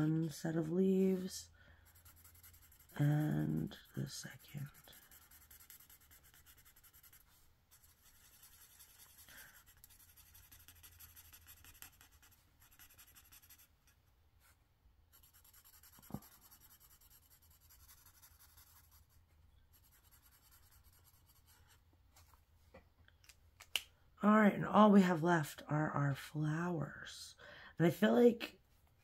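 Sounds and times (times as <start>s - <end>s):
marker scratching on paper: 1.8s - 13.7s, 15.1s - 21.8s.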